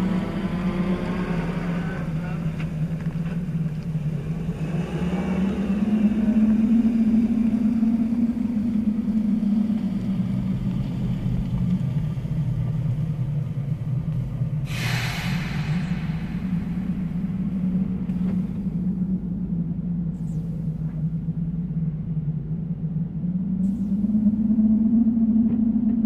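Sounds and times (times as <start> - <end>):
car engine rumbling: 0.0 - 26.0
brief hiss: 14.7 - 17.0.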